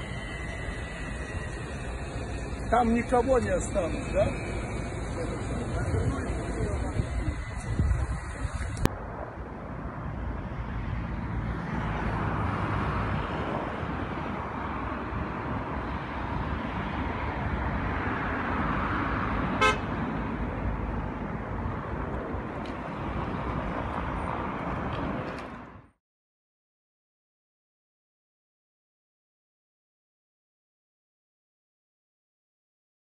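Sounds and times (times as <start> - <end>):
street traffic noise: 0.0 - 26.0
car horn toot: 19.6 - 19.9.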